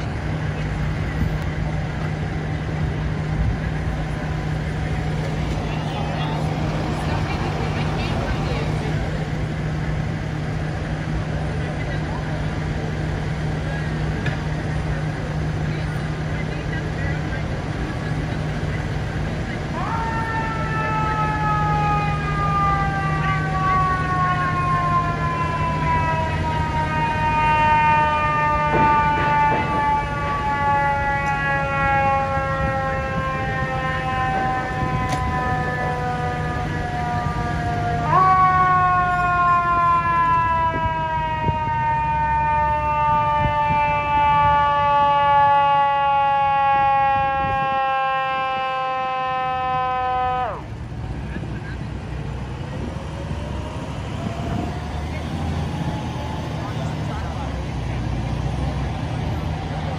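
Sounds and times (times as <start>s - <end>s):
low engine rumble: 0.0s - 59.9s
traffic drone: 0.0s - 59.9s
siren wailing: 3.7s - 9.8s, 19.5s - 51.0s, 52.2s - 59.9s.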